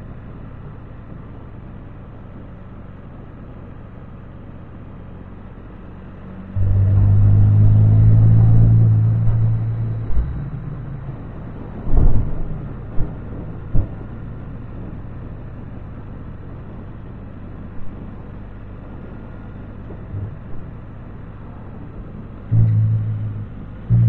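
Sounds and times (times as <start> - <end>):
low engine drone: 0.0 - 24.0
wind and road noise: 0.0 - 24.0
dull thumps: 20.0 - 20.9, 22.5 - 24.0.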